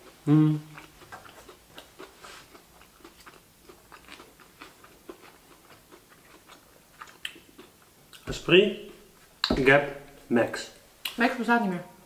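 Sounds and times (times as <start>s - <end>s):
chewing food: 0.0s - 8.4s.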